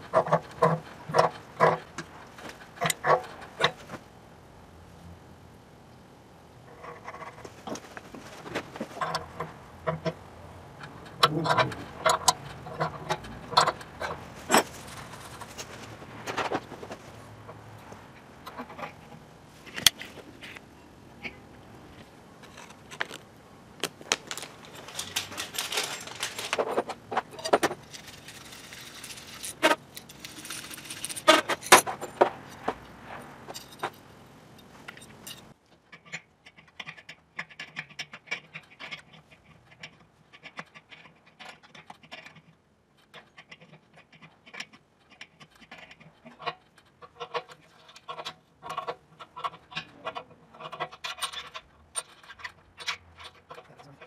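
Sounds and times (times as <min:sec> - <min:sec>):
plastic packet crinkling: 0:23.8 - 0:26.8
metal sleeves jingling: 0:23.9 - 0:32.7.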